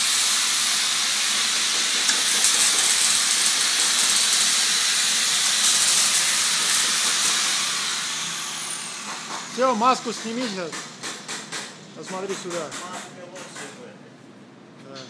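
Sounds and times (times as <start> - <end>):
arc welding crackling hiss: 0.0 - 10.7.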